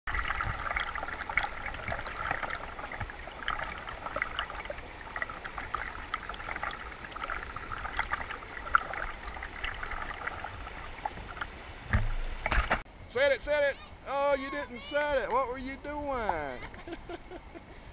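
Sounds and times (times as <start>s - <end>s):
creek babbling over rocks: 0.1s - 12.0s.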